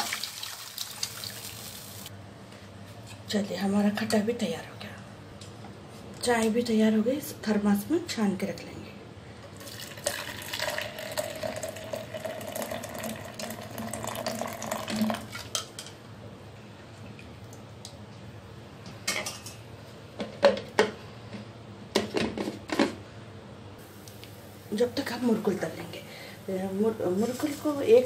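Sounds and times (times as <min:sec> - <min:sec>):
tea pouring into a flask: 0:09.6 - 0:15.3.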